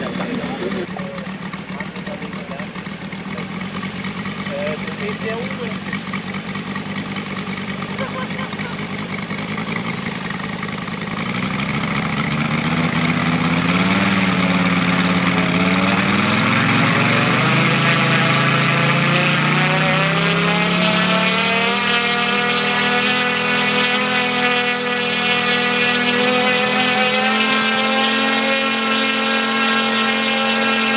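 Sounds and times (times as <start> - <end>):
model plane engine revving: 0.0 - 30.9.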